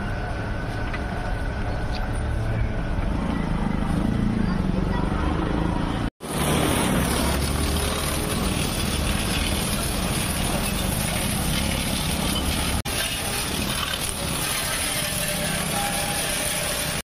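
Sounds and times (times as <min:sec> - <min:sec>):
pressure washer pump humming: 0:06.2 - 0:17.0
water jet hissing: 0:06.2 - 0:17.0.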